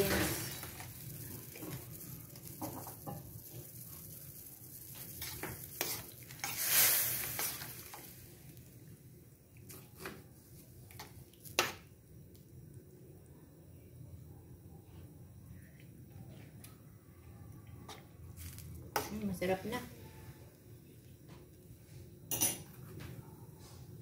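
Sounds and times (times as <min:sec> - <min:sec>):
spoon stirring liquid in wok: 0:00.0 - 0:08.3.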